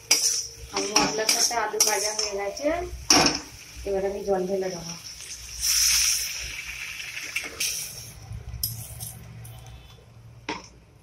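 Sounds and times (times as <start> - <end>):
water splashing into hot pan: 3.0 - 8.2.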